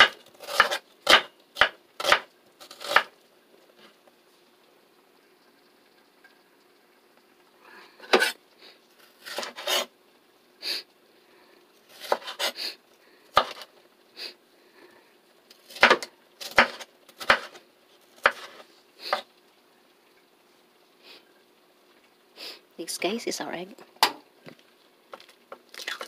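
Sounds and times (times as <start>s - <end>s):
knife slicing pepper on wooden board: 0.0s - 3.1s, 9.2s - 9.9s, 11.9s - 12.6s, 13.4s - 13.7s, 15.7s - 17.6s, 18.2s - 19.3s.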